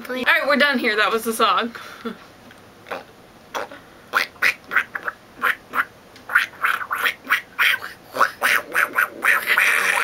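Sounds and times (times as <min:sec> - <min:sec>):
person making vocal sounds: 0:06.4 - 0:10.0.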